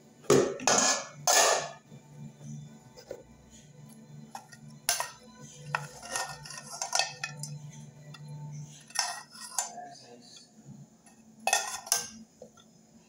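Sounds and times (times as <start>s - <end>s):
metal utensil scraping metal pot: 0.6s - 1.8s, 4.2s - 9.9s, 11.0s - 12.2s.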